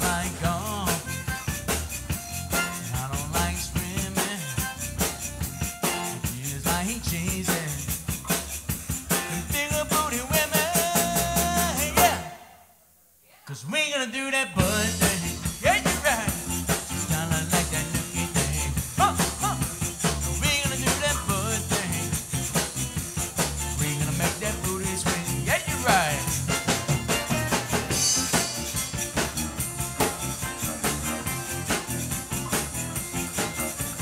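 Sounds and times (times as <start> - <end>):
button accordion: 0.0 - 6.3, 14.6 - 34.0
live band playing: 0.0 - 12.5, 14.6 - 34.0.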